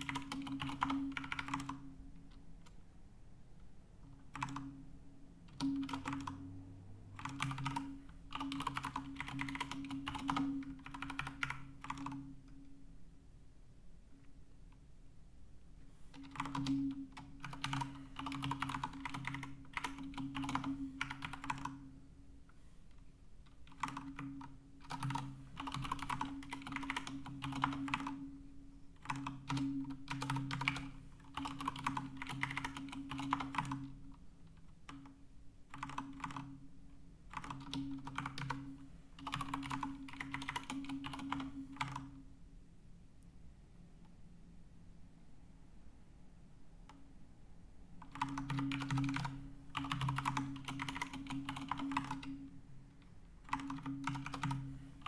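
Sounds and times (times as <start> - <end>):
typing on computer keyboard: 0.0 - 2.8, 4.0 - 4.8, 5.4 - 6.5, 7.2 - 12.6, 16.1 - 21.9, 23.5 - 28.2, 29.0 - 36.6, 37.3 - 42.2, 48.0 - 52.5, 53.4 - 54.8.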